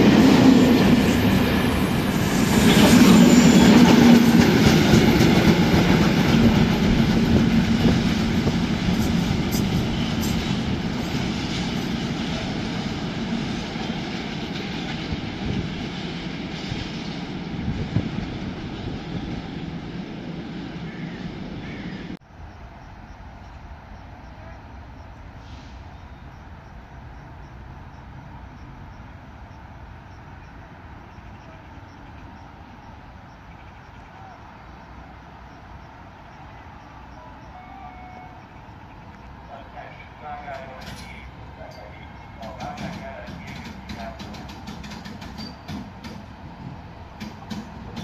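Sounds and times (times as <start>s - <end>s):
train wheels clattering on rails: 0.0s - 19.5s, 40.3s - 48.0s
train wheel squeal: 1.1s - 5.3s, 6.0s - 12.7s, 40.6s - 46.3s.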